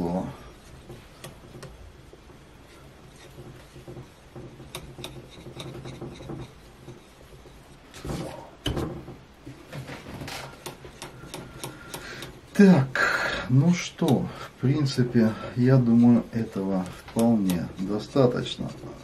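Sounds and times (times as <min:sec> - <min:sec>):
knocks and scrapes: 0:00.0 - 0:19.0
sharpening stone on hatchet edge: 0:10.6 - 0:12.5.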